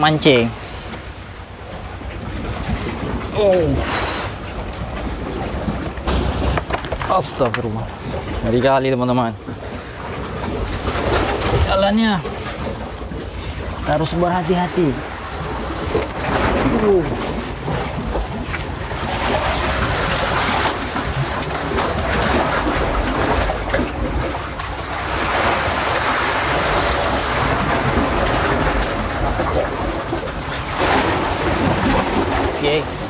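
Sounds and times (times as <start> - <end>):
sea waves washing through rocks: 0.0 - 33.0.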